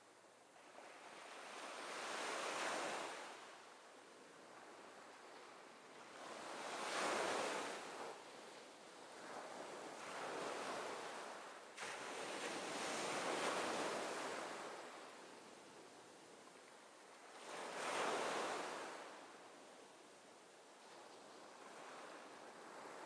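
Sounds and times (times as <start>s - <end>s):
wind: 0.0s - 23.0s.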